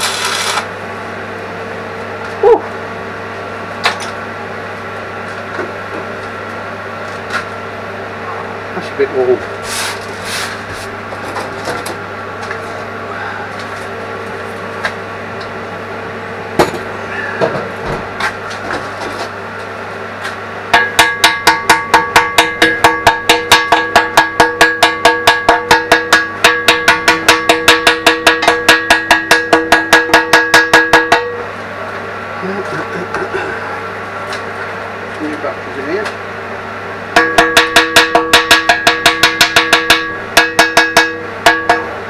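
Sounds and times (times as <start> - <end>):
hammer striking steel bucket: 20.7 - 31.4, 37.2 - 42.0.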